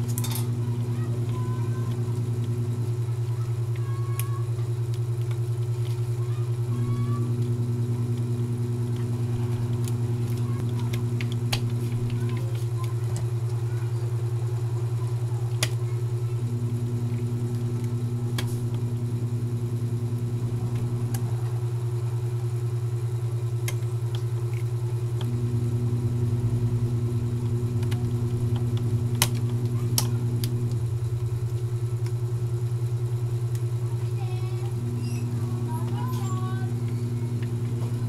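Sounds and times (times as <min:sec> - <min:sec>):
loud low pulsing drone: 0:24.7 - 0:33.5.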